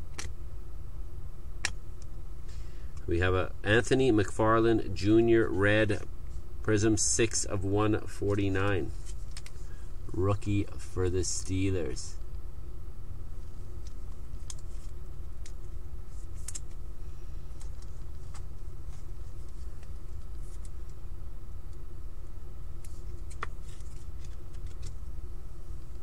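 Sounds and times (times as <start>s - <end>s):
steady low hum: 0.0s - 26.0s
trading cards being flipped: 9.0s - 9.6s, 13.8s - 16.8s, 22.8s - 25.0s.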